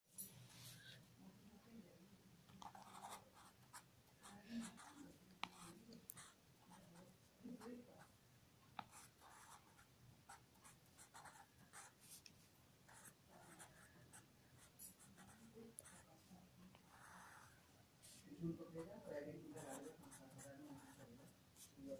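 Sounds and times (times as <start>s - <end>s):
marker pen scratching on paper: 2.6s - 6.9s, 8.8s - 12.3s, 12.9s - 16.1s, 16.7s - 21.9s.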